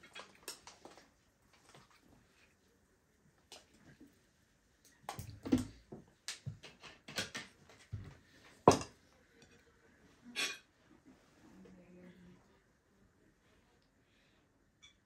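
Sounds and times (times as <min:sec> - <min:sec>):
dishes and utensils clinking: 0:10.3 - 0:10.7.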